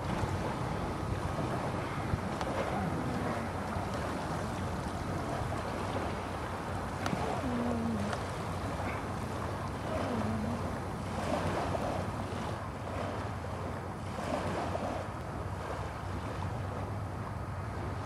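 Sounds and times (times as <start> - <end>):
wind blowing on microphone: 0.0 - 15.0
small sea waves: 0.0 - 18.0.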